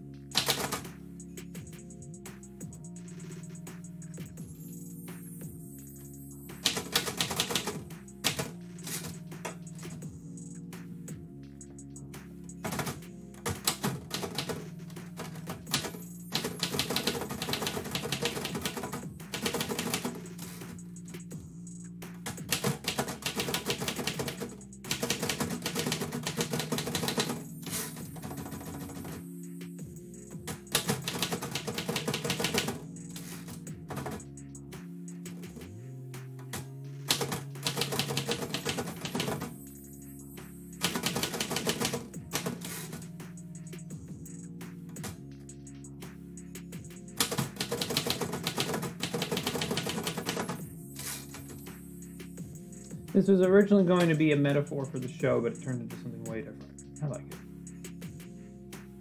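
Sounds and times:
background music: 0:00.0 - 0:59.0
typewriter keys clicking: 0:00.4 - 0:00.8, 0:06.7 - 0:09.6, 0:12.7 - 0:20.2, 0:22.5 - 0:29.2, 0:30.7 - 0:34.2, 0:37.1 - 0:39.5, 0:40.8 - 0:43.0, 0:47.2 - 0:51.2.

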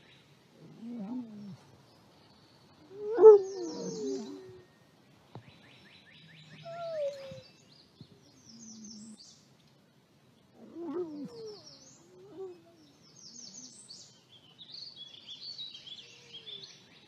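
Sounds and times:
faint birds chirping: 0:00.0 - 0:17.0
wolves whining and moaning: 0:00.6 - 0:01.7, 0:02.8 - 0:04.8, 0:06.5 - 0:07.5, 0:10.6 - 0:13.7.

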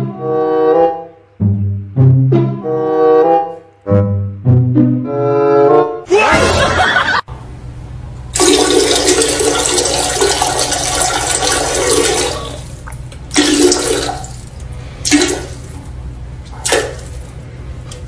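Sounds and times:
toilet flushing: 0:08.3 - 0:17.4.

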